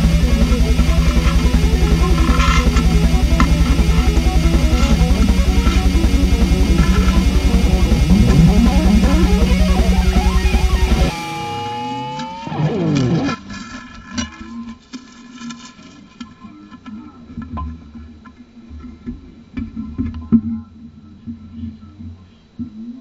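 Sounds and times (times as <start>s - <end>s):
falling gliding tones: 0.0s - 13.4s
rock music with electric guitar: 0.0s - 13.4s.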